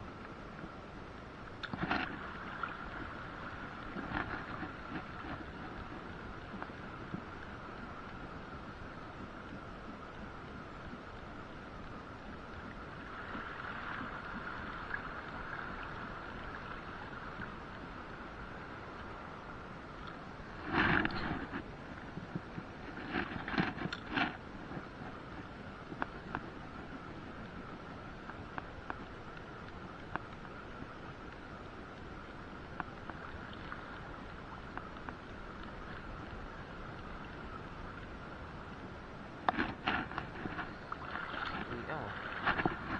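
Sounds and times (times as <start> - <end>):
water noise at sea: 0.0 - 42.9
wind at sea: 0.0 - 42.9
light ticks: 24.7 - 26.6, 27.4 - 34.1, 34.7 - 40.7
faint tick: 28.2 - 32.0, 32.8 - 33.2.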